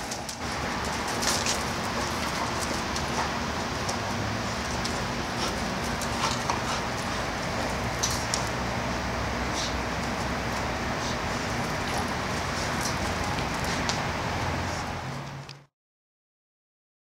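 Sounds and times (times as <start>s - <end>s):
dog paws on gravel: 0.0s - 8.6s, 11.0s - 15.2s.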